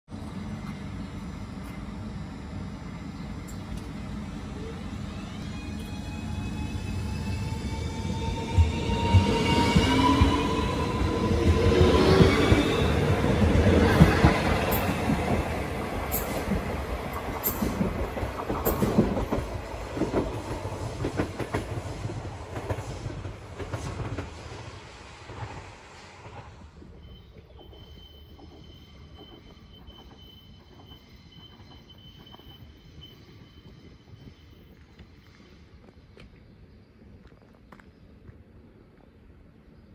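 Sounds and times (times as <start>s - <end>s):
train low rumble: 0.1s - 39.9s
train wheels clacking on rail joints: 13.5s - 24.3s.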